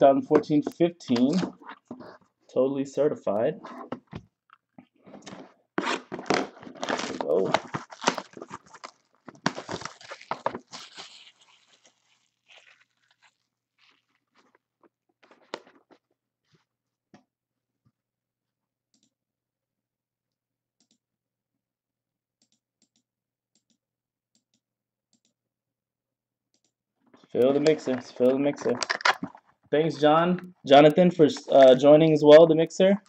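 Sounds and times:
plastic shrink-wrap tearing: 0:05.8 - 0:14.2.

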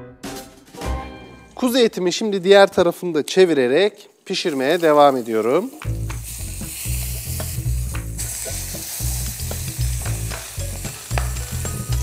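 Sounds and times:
meat sizzling in butter: 0:04.3 - 0:12.0.

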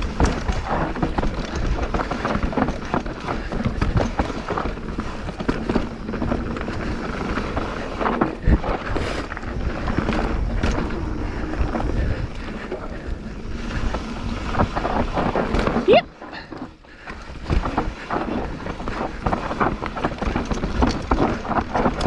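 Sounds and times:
bike rattles and knocks: 0:00.0 - 0:22.0
bike tyre noise on dirt: 0:00.0 - 0:22.0.

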